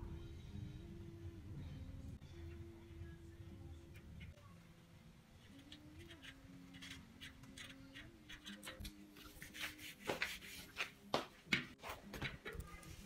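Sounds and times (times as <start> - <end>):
faint background music: 0.0 - 13.0.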